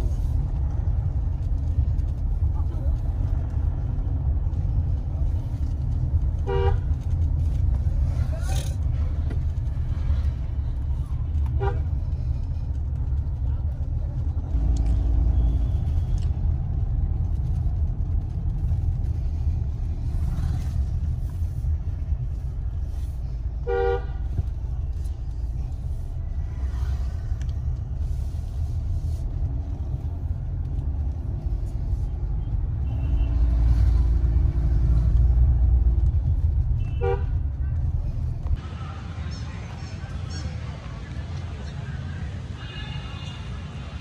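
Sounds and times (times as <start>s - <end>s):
car cabin road rumble: 0.0s - 44.0s
vehicle horns: 6.4s - 7.0s, 11.5s - 12.0s, 23.6s - 24.4s, 32.8s - 33.8s, 36.7s - 37.4s, 42.6s - 43.8s.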